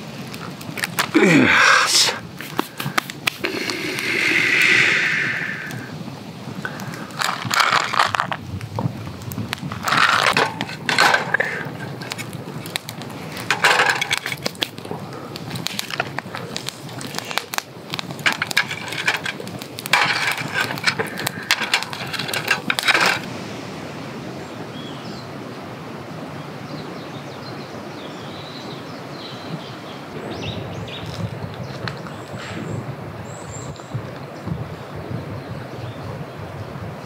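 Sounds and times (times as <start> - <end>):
outdoor hush: 0.0 - 25.5
crackling campfire: 0.0 - 37.0
faint bird calls: 1.1 - 7.3
shells clattering onto metal grill: 9.8 - 11.9, 13.5 - 14.6, 18.2 - 23.3.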